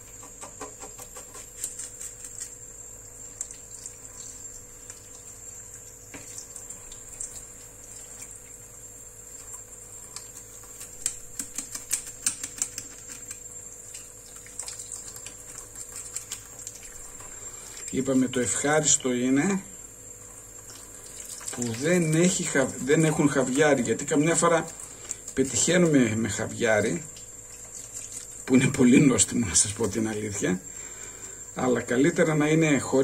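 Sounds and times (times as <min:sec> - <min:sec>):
faint steady hum: 0:00.0 - 0:33.0
knife scraping fish: 0:00.6 - 0:02.6, 0:10.1 - 0:13.4.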